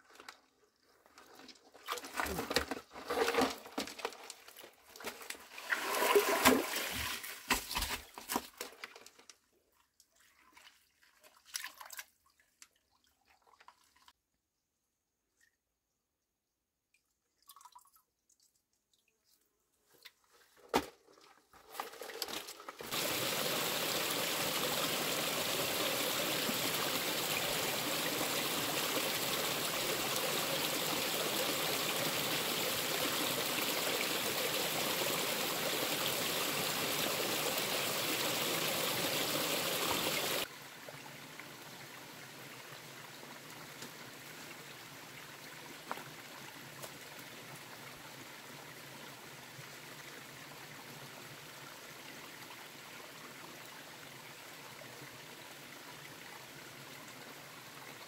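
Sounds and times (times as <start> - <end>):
faint rush of water: 5.0 - 8.0, 22.8 - 58.0
water running: 22.8 - 40.5.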